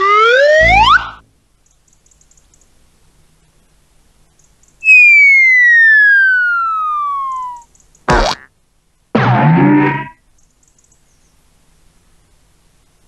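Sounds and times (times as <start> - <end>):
cartoon falling whistle: 0.4 - 1.2, 4.8 - 8.5, 9.2 - 10.2.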